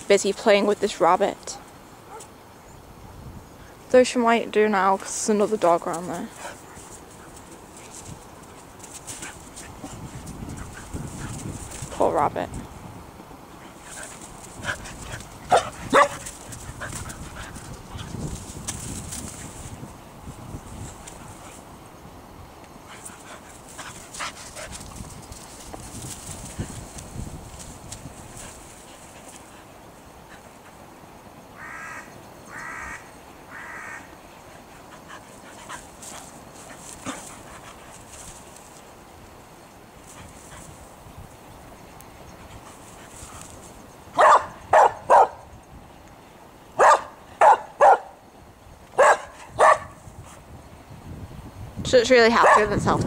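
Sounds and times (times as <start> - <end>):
dog barking: 2.1 - 2.3, 15.5 - 16.2, 44.2 - 45.4, 46.8 - 48.1, 49.0 - 50.0, 52.4 - 52.7
faint rustling: 4.9 - 12.8, 34.5 - 39.4
crow cawing: 31.6 - 34.1.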